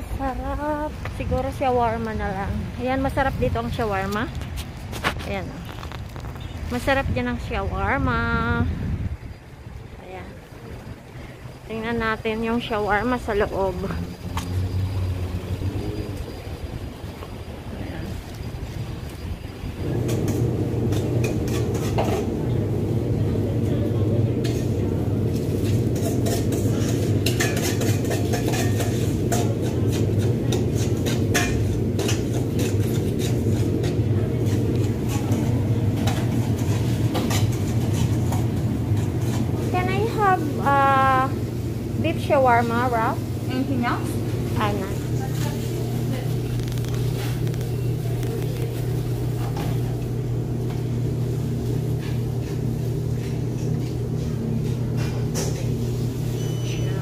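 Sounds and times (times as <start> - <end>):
steady low hum: 6.7 - 56.6
dishes and cutlery clinking: 25.6 - 39.7, 54.9 - 57.0.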